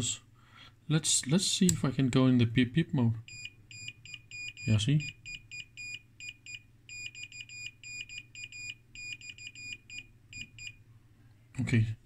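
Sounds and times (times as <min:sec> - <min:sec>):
multimeter beeps: 0:03.3 - 0:10.8.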